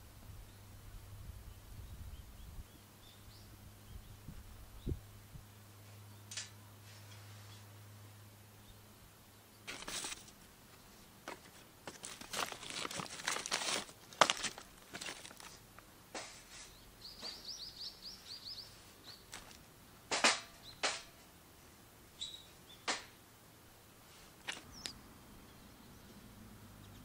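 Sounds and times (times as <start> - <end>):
bird chirping: 0.4 - 5.1, 16.6 - 19.5, 20.5 - 20.9, 22.1 - 22.9, 24.6 - 27.0
dry twigs crackling: 9.7 - 16.4, 19.0 - 21.1, 24.4 - 25.0.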